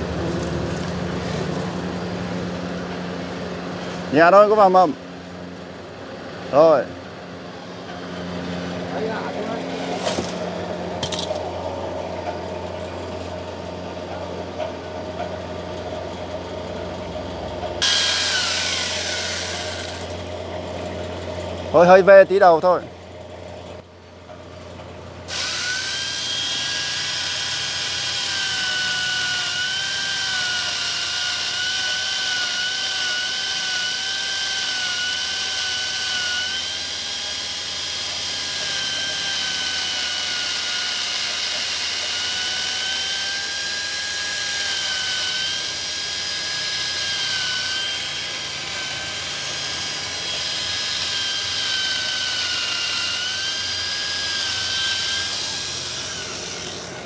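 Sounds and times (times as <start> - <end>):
power tool cutting wood: 0.0 - 2.0, 8.9 - 11.5, 17.8 - 20.4, 25.3 - 57.0.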